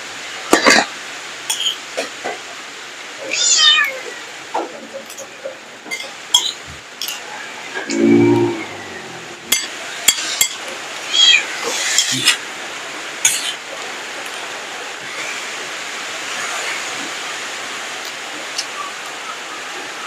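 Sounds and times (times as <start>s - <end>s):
rain hiss: 0.0s - 20.0s
cat meowing: 3.3s - 4.1s, 11.0s - 11.5s
short low hum: 7.9s - 9.6s.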